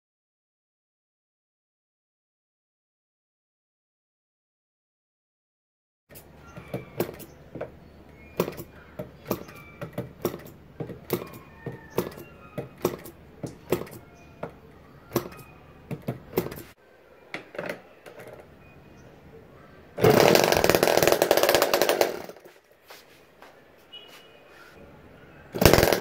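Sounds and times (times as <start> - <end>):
model engine propeller clacks: 8.4 - 14.0, 20.0 - 22.5, 25.6 - 26.0.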